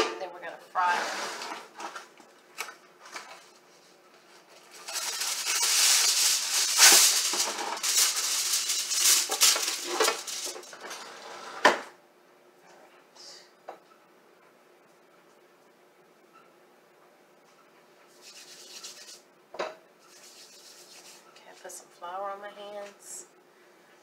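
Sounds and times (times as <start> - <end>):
plastic bag rustling: 3.0 - 11.3.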